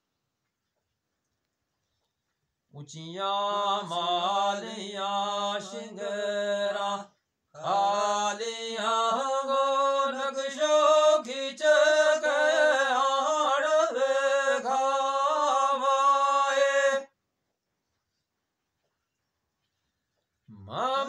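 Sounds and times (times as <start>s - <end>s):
man singing unaccompanied: 2.7s - 17.2s, 20.5s - 21.0s.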